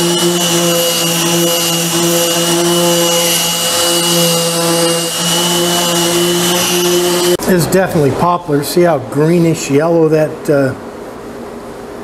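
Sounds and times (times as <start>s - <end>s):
orbital sander running: 0.0s - 7.4s.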